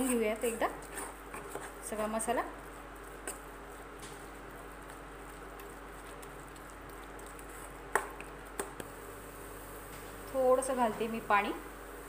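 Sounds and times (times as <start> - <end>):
spatula stirring thick paste: 0.0 - 8.8.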